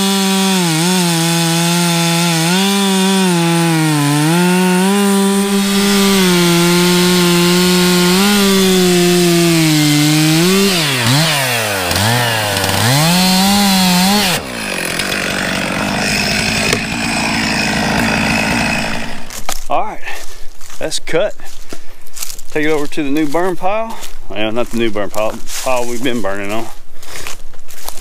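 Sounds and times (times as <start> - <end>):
chainsaw cutting wood: 0.0 - 19.6.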